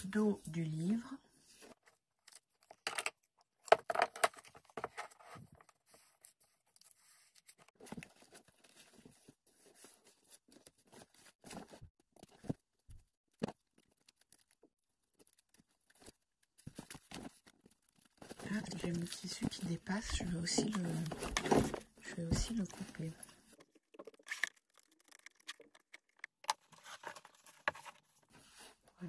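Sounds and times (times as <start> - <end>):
hands rustling and tapping book: 15.1 - 28.8.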